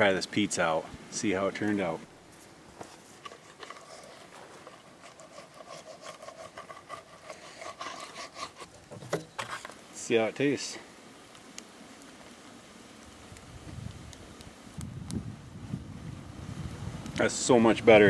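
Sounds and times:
pizza cutter scraping through crust: 0:02.8 - 0:08.7.

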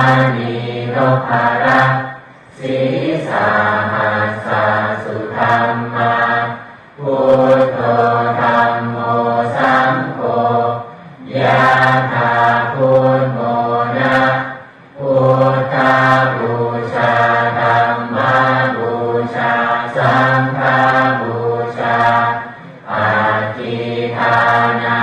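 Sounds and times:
monotone chanting: 0:00.0 - 0:25.0.

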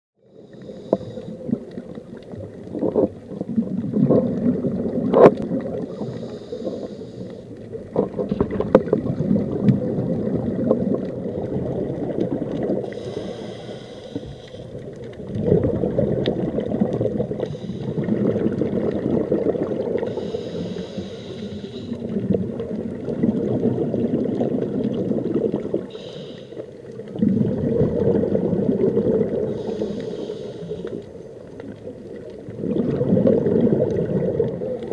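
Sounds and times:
diver breathing through regulator: 0:00.3 - 0:01.6, 0:05.8 - 0:07.6, 0:12.8 - 0:14.9, 0:17.3 - 0:18.4, 0:20.0 - 0:22.2, 0:25.9 - 0:26.8, 0:29.3 - 0:31.2
bubbling gurgling exhales: 0:00.5 - 0:34.9.

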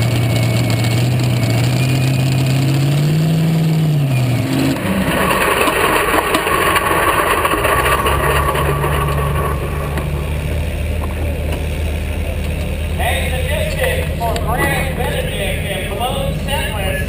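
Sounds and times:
engine idling close up: 0:04.9 - 0:17.0.

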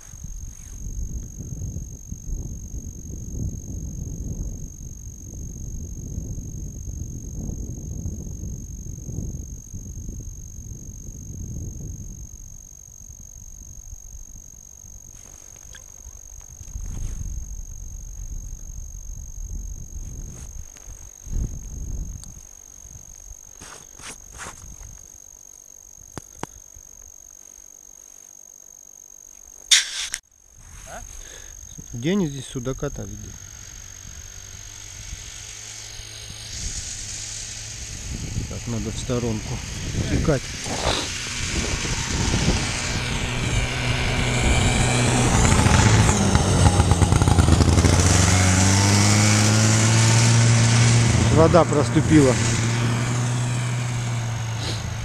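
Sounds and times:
faint high whine: 0:00.0 - 0:55.0
snowmobile engine running: 0:32.9 - 0:55.0.

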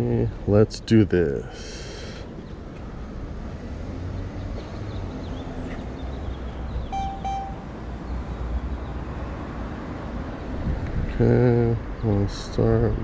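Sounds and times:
traffic rumble: 0:00.0 - 0:13.0
short electronic beeps: 0:06.9 - 0:07.7
wind on microphone: 0:10.6 - 0:11.2.

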